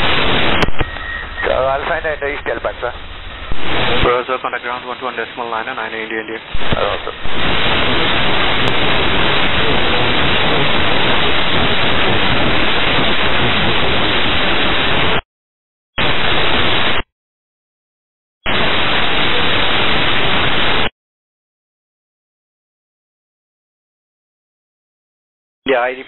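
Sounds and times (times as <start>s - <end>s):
radio static hiss: 0.0s - 15.2s, 16.0s - 17.0s, 18.5s - 20.9s.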